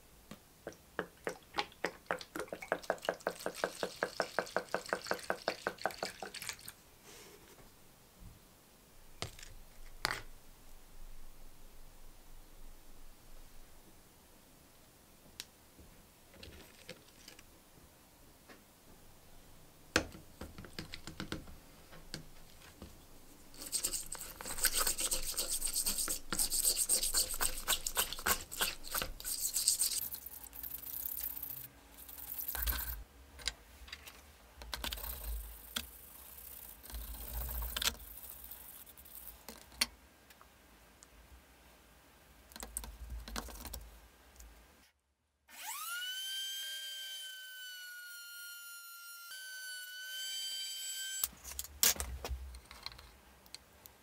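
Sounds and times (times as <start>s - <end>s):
blade scrubbed in water: 23.6s - 30.4s.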